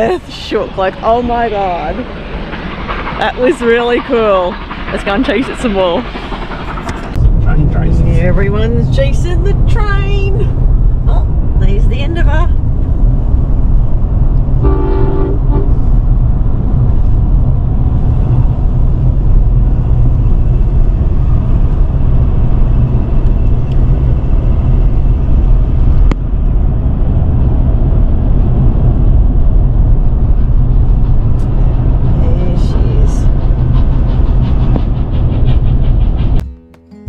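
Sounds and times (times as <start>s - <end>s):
vehicle rumble: 0.0s - 36.7s
short horn toot: 14.6s - 15.8s.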